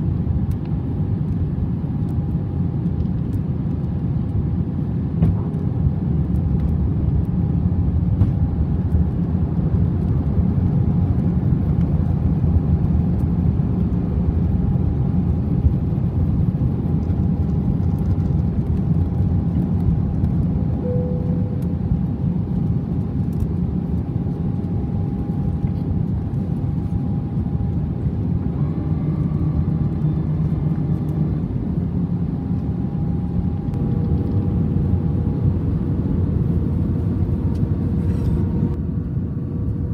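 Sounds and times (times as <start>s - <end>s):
airliner cabin rumble: 0.0s - 39.9s
faint steady whine: 0.0s - 39.9s.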